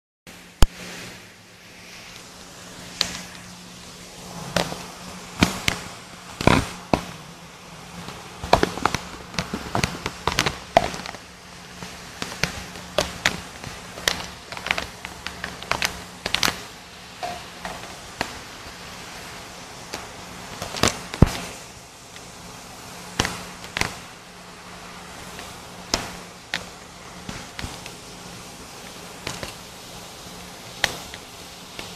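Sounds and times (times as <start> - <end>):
steady low hum: 0.3 - 31.9.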